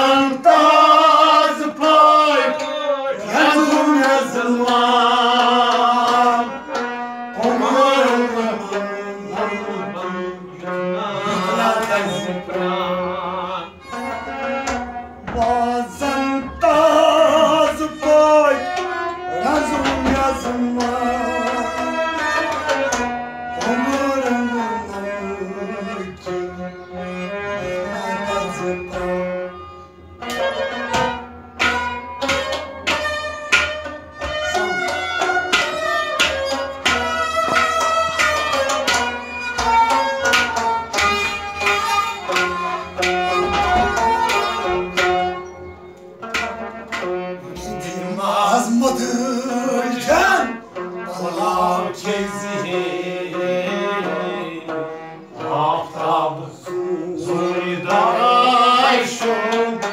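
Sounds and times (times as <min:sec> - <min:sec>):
held instrumental notes: 0:00.0 - 0:59.9
tabla drumming: 0:03.3 - 0:09.6, 0:14.0 - 0:25.2, 0:30.2 - 0:49.3.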